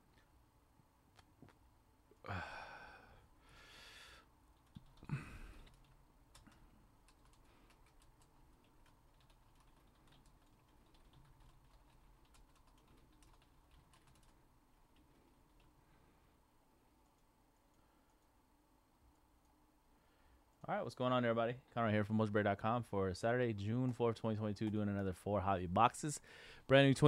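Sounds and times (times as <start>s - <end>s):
sigh: 2.2s - 4.3s, 5.0s - 5.7s
keyboard typing: 4.6s - 15.8s.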